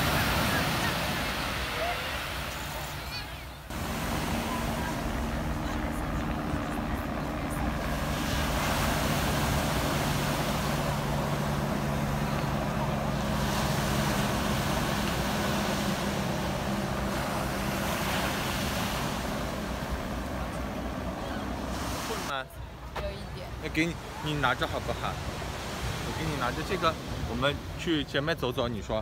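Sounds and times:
surf breaking on shore: 0.0 - 22.4
helicopter engine and rotor hum: 3.7 - 22.2.

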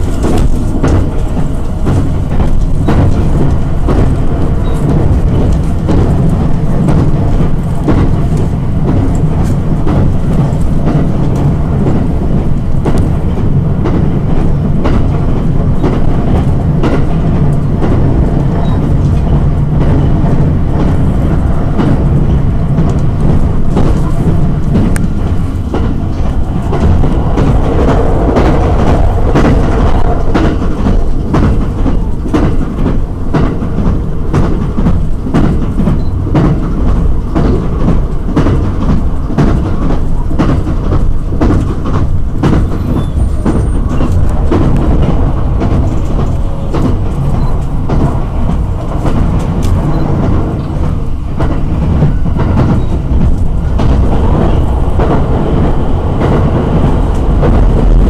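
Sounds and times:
train low rumble: 0.0 - 58.0.

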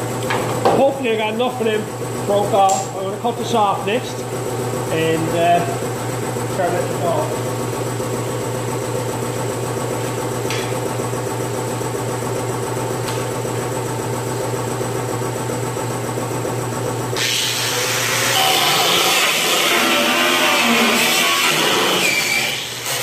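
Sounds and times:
machine hum: 0.0 - 23.0
cut-off wheel cutting sheet metal: 17.2 - 23.0.

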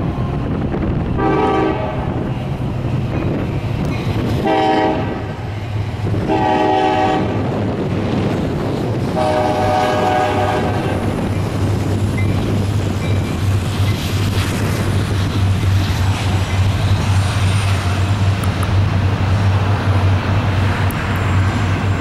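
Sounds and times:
train rumble: 0.0 - 22.0
locomotive air horn blasts: 1.2 - 2.2, 4.4 - 5.4, 6.2 - 7.4, 9.2 - 11.0.

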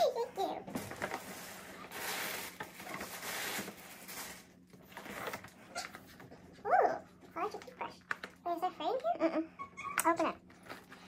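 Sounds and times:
gift wrapping crinkling: 0.7 - 6.1.

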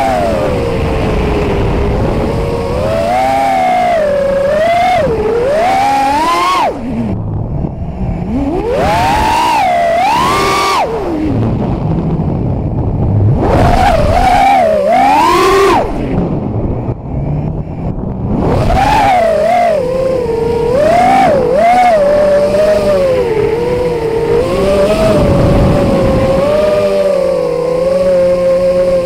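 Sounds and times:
drone motors whining: 0.0 - 29.0.

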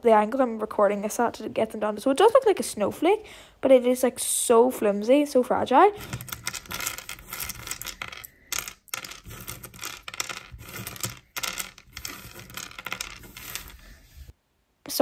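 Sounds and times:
plastic pieces clicking and clattering: 6.0 - 13.9.

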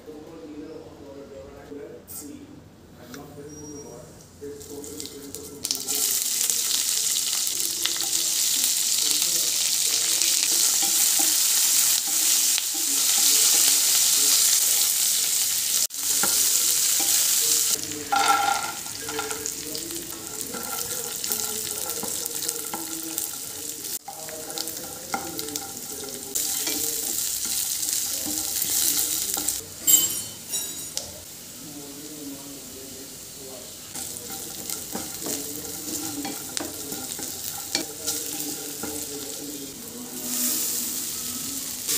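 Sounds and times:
hot oil sizzling in frying pan: 4.6 - 41.9
metal clinks: 29.8 - 31.0.

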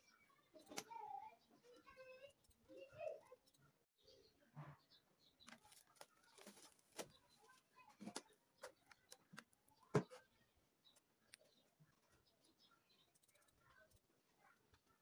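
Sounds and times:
cling film rustling: 5.5 - 8.8.

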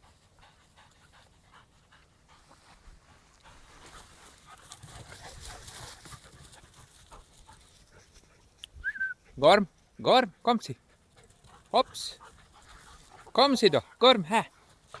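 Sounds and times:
dogs panting: 0.0 - 8.6, 9.2 - 15.0
rustling on grass: 0.0 - 8.6.

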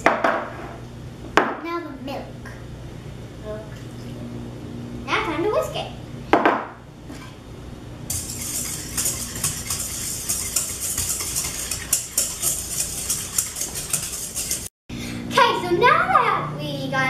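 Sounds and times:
whisk clinking against metal bowl: 8.1 - 14.7.

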